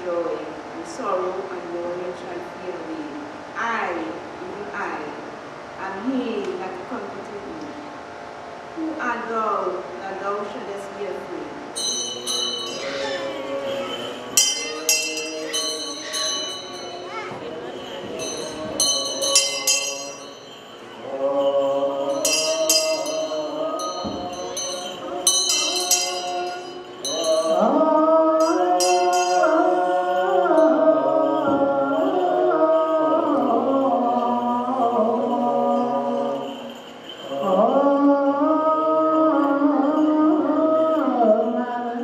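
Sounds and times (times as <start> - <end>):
censer bells jingling: 11.7 - 39.1
men chanting together: 11.8 - 36.5.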